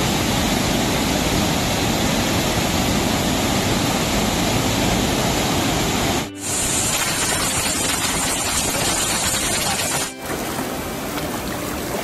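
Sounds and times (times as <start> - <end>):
waterfall rushing: 0.0 - 12.0
spray splashing off boulder: 6.4 - 10.2.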